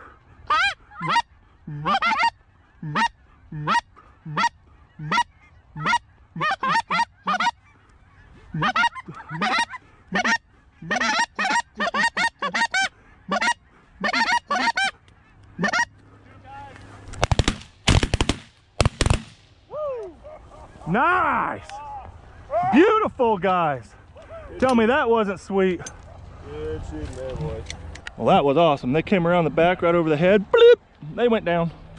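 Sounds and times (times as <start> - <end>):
geese honking: 0.0 - 17.1
suppressed shotgun shots: 17.2 - 19.4.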